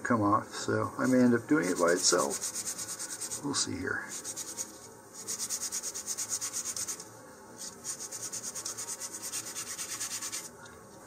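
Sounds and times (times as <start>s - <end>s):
sandpaper rubbing on wood: 1.0s - 3.5s, 4.1s - 7.0s, 7.6s - 10.5s.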